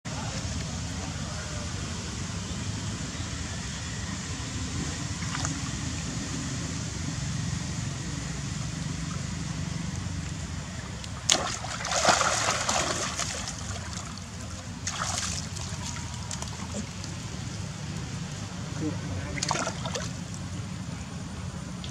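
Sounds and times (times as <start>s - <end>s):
water splashing: 10.2s - 17.6s, 19.2s - 20.4s.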